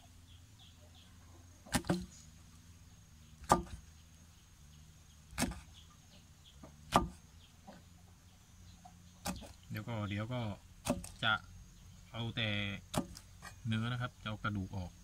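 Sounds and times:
cleaver chopping on wooden block: 1.7 - 2.1, 3.4 - 3.9, 5.3 - 5.7, 6.6 - 7.2, 9.2 - 9.6, 10.8 - 11.2, 12.9 - 13.6.

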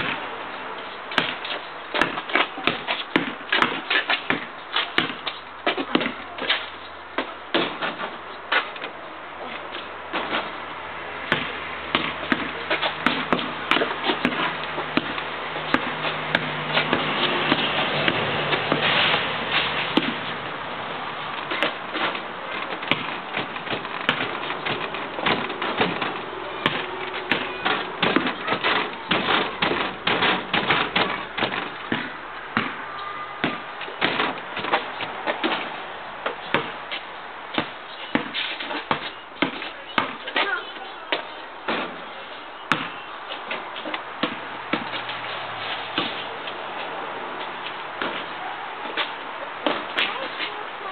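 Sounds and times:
basketball bouncing on asphalt: 0.0 - 0.3, 1.1 - 9.0, 9.7 - 20.4, 21.1 - 50.9.

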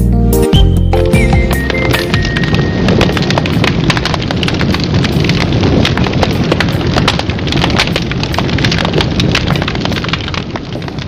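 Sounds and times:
crackles and pops: 1.2 - 11.0
loud rumbling noise: 1.8 - 11.0.

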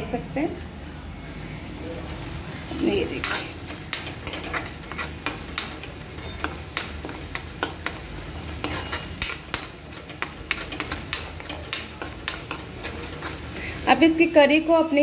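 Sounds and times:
gravy sizzling: 1.6 - 15.0
spoon knocking pan sides: 3.0 - 13.6
spoon stirring and scraping gravy: 3.0 - 13.8.

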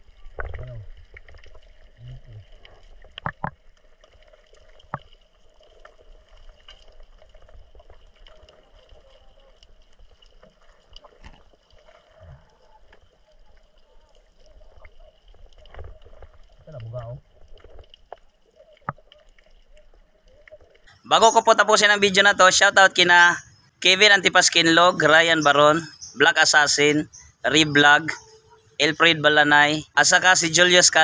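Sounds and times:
faint underwater hum: 0.0 - 23.8
sharp knocks underwater: 3.0 - 3.7, 18.8 - 19.2.

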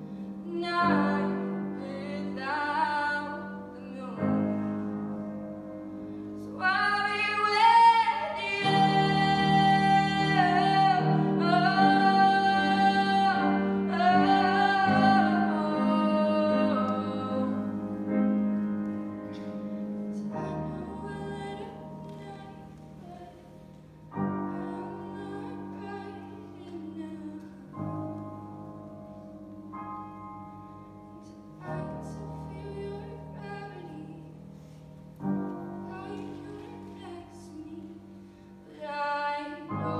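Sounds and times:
grand piano: 0.0 - 39.9
woman singing: 0.4 - 5.2, 6.4 - 18.2, 20.1 - 28.2, 31.1 - 34.4, 35.3 - 39.9.

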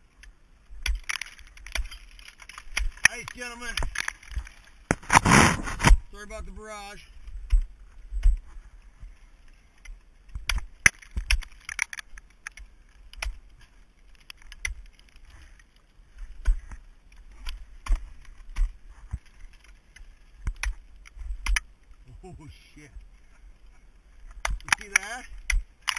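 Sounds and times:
ice axe striking ice: 0.8 - 6.0.

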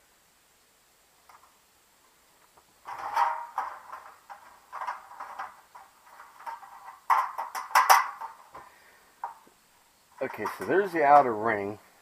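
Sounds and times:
sheet metal scraping and rattling: 2.8 - 8.6, 10.2 - 11.4.

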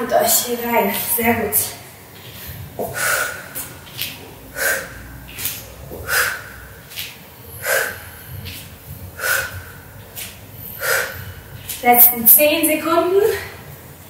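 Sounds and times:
woman breathing hard: 2.2 - 11.8.

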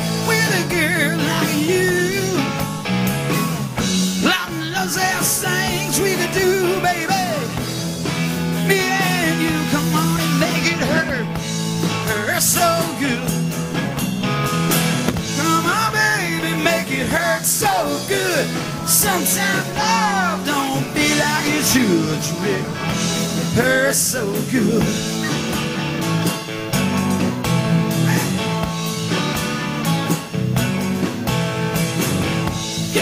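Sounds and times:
man singing: 0.0 - 2.7, 4.2 - 7.7, 8.6 - 13.5, 15.2 - 25.4, 32.8 - 33.0
live rock band playing: 0.0 - 33.0.

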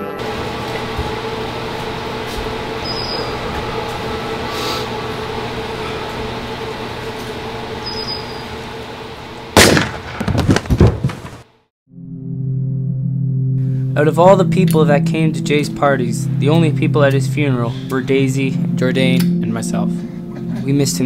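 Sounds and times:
noisy drone with low hum: 0.0 - 10.1, 12.4 - 21.0.

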